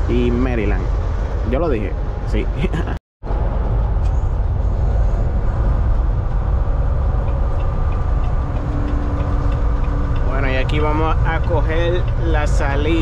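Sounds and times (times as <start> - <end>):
truck engine and road rumble: 0.0 - 13.0.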